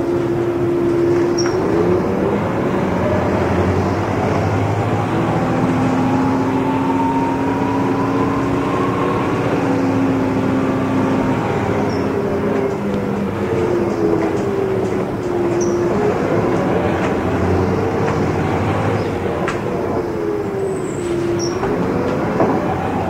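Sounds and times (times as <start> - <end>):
bus diesel engine droning: 0.0 - 23.0
transmission whine rising in pitch: 0.2 - 14.7.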